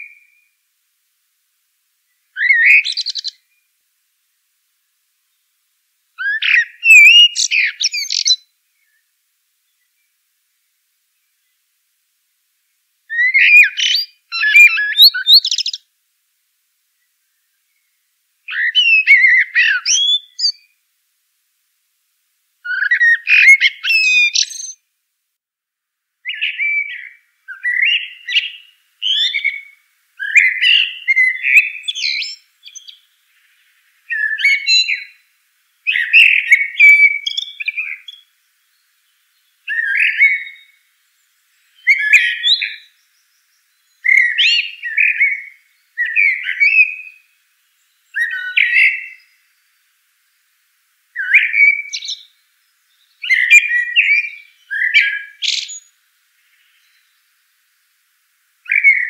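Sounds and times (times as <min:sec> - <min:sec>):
mockingbird singing: 0:02.4 - 0:03.5, 0:06.2 - 0:08.4, 0:13.1 - 0:15.8, 0:18.5 - 0:20.7, 0:22.7 - 0:24.8, 0:26.2 - 0:35.2, 0:35.9 - 0:38.8, 0:39.6 - 0:40.8, 0:41.6 - 0:47.2, 0:47.9 - 0:49.4, 0:51.2 - 0:52.3, 0:53.0 - 0:55.9, 0:58.7 - 0:59.0.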